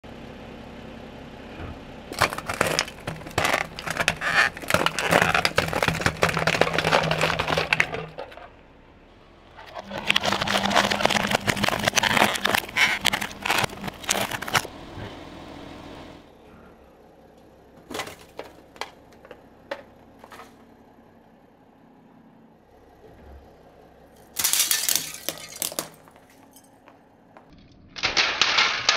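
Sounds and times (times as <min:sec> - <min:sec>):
car engine running: 0:00.1 - 0:27.6
tyre crushing brittle material: 0:02.1 - 0:08.5, 0:09.6 - 0:14.7, 0:17.8 - 0:19.4, 0:24.2 - 0:26.7, 0:28.0 - 0:28.9.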